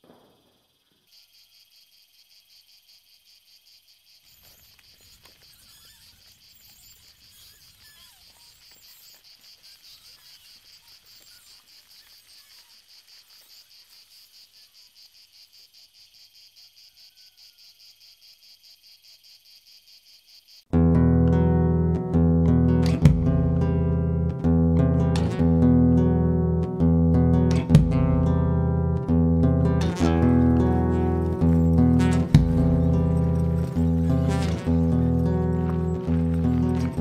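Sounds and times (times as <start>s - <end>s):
faint insect chorus shrilling: 0.0s - 20.7s.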